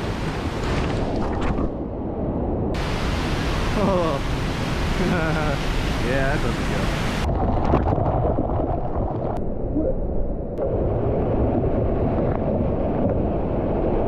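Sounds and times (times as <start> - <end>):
muffled waterfall rushing: 2.8 - 7.3.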